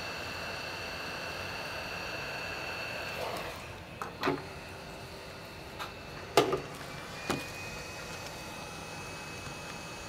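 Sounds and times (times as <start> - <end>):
hot-air blower hissing: 0.0 - 10.0.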